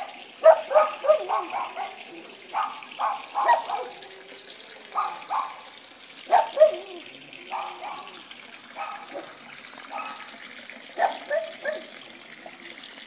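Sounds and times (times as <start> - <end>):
dog barking: 0.0 - 4.0, 5.0 - 5.7, 6.3 - 8.2, 8.8 - 10.3, 11.0 - 11.9
faint trickle of water: 0.0 - 13.0.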